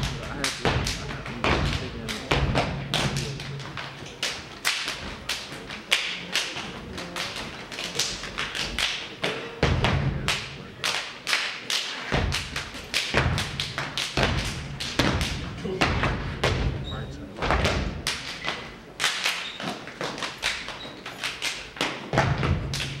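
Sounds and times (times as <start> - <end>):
body percussion slaps: 0.0 - 16.8, 17.4 - 23.0
foot stomps on stage floor: 22.1 - 23.0.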